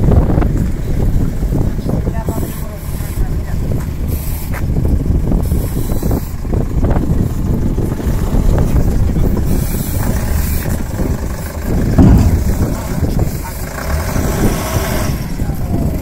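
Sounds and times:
wind on microphone: 0.0s - 16.0s
low engine rumble: 6.4s - 14.3s.

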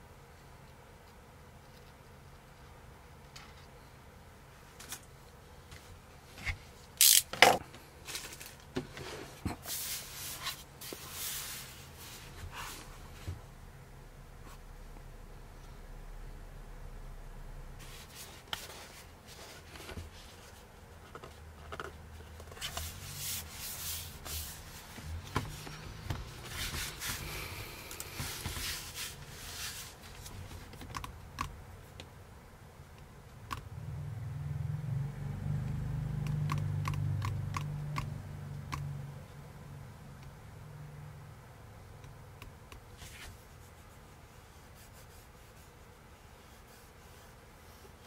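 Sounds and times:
hands rubbing laptop: 17.8s - 31.5s, 42.8s - 48.0s.

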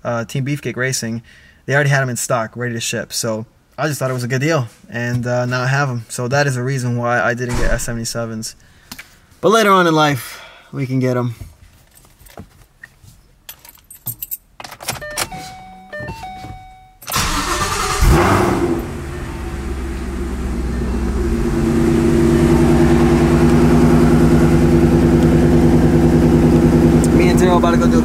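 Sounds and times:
car engine starting and idling: 17.0s - 28.0s.

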